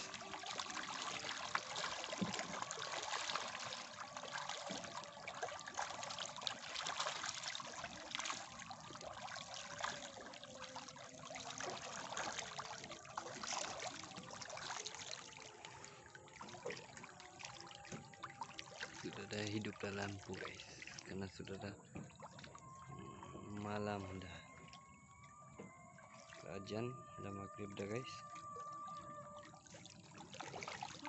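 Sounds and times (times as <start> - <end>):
fish splashing at water surface: 0.0 - 24.8, 27.6 - 31.0
trickling water: 0.0 - 31.0.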